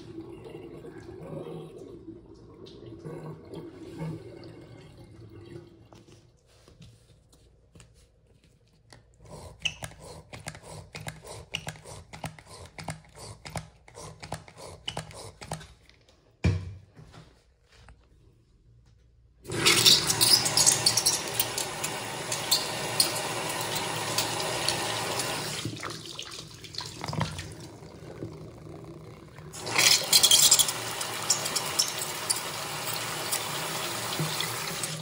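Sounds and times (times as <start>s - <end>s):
water running down drain: 19.4s - 35.0s
soap pump squirting foam: 19.5s - 26.0s, 29.5s - 35.0s.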